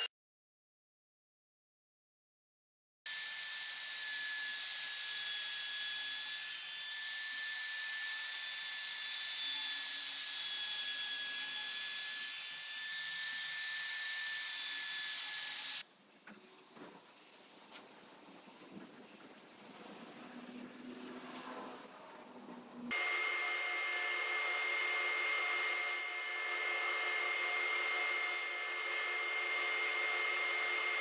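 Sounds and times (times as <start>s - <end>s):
trim router whining: 22.9s - 31.0s.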